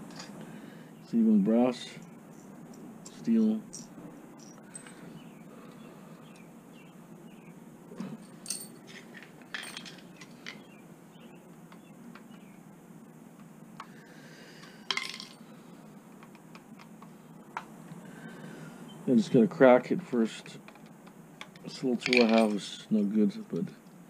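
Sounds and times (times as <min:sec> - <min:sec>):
metal tools clicking and scraping: 0:02.0 - 0:05.1, 0:08.1 - 0:10.7, 0:20.7 - 0:22.8
metal tools clattering: 0:03.7 - 0:05.1, 0:08.0 - 0:10.7, 0:14.9 - 0:15.4, 0:21.7 - 0:22.8.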